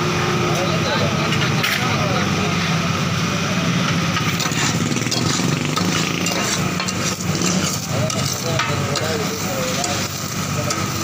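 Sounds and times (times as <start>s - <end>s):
meat sizzling on a griddle: 4.1s - 11.0s
metal spatulas scraping griddle: 4.1s - 11.0s.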